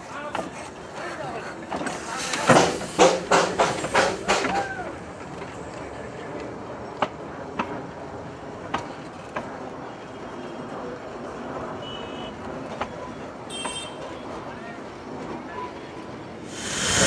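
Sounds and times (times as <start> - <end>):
train coaches rolling past: 0.0 - 17.0
train wheel clicks: 1.7 - 7.8.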